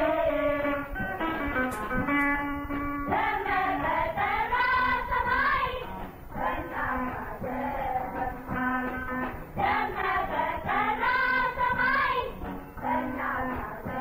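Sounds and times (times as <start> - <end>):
instrumental accompaniment: 0.0 - 14.0
person singing: 3.1 - 14.0.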